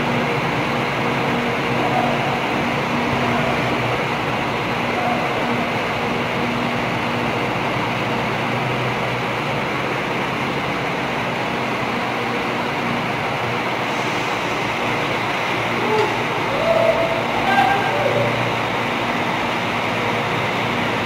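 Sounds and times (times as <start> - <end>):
bus diesel engine running: 0.0 - 21.0.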